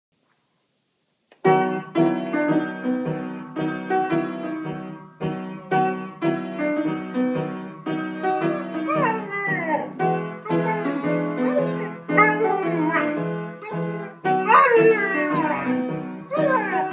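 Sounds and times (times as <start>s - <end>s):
piano chords and notes: 1.4s - 16.9s
puppy howling: 8.1s - 16.9s.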